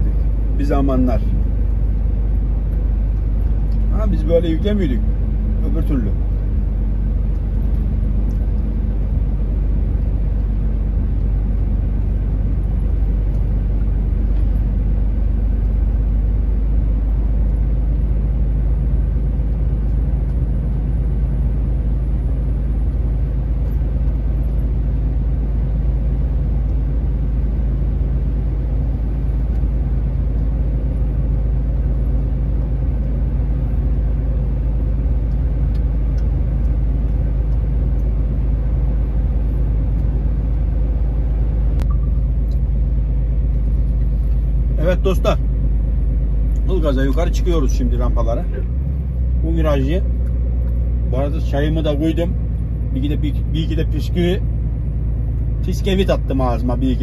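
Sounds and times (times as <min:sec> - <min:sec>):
truck diesel engine drone: 0:00.0 - 0:57.0.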